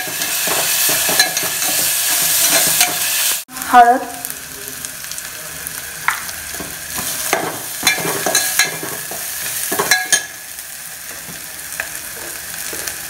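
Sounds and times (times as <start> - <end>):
paste sizzling in hot oil: 0.0 - 13.0
metal spoon scraping pot: 0.1 - 3.1.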